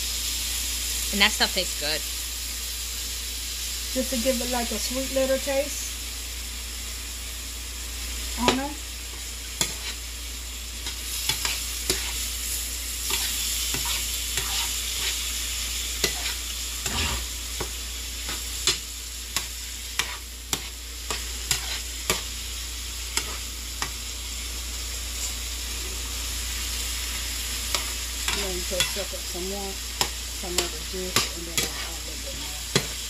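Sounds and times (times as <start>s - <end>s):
shrimp sizzling in a frying pan: 0.0s - 33.0s
utensil scraping a pan: 9.1s - 10.0s, 10.8s - 12.2s, 13.0s - 15.2s, 16.0s - 18.8s, 19.4s - 22.2s, 30.0s - 33.0s.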